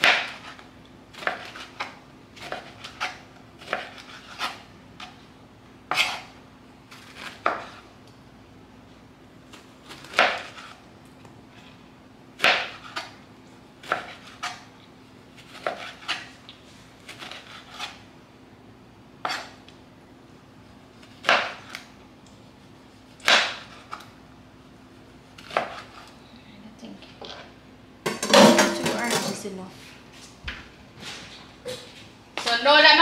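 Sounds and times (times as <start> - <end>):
knife chopping on cutting board: 0.0 - 5.2, 5.9 - 6.4, 7.0 - 7.8, 9.9 - 10.8, 12.4 - 13.2, 13.8 - 14.7, 15.4 - 16.3, 19.2 - 19.6, 21.2 - 21.8, 23.2 - 24.0, 25.4 - 26.0.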